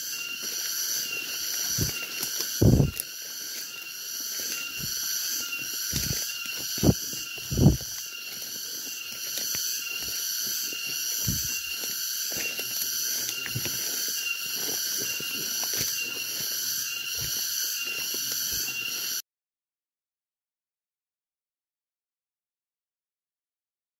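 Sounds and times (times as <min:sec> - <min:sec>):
high-pitched insect chorus: 0:00.0 - 0:19.2
footsteps through leaf litter: 0:00.1 - 0:16.6.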